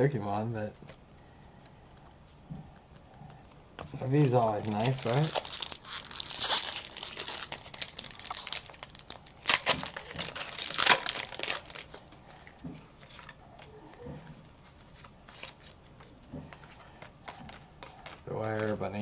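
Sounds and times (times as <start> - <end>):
cards rustling and ticking: 0.4 - 19.0
foil wrapper crinkling and tearing: 4.1 - 13.4.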